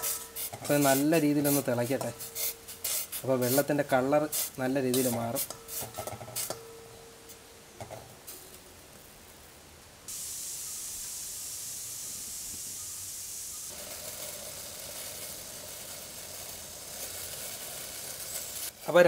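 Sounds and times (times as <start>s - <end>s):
water boiling in a pot: 8.8s - 19.0s.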